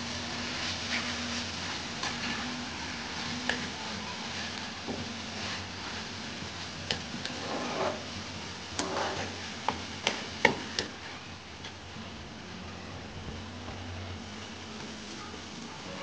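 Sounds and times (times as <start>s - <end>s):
spatula scraping and knocking pan: 3.4s - 11.1s.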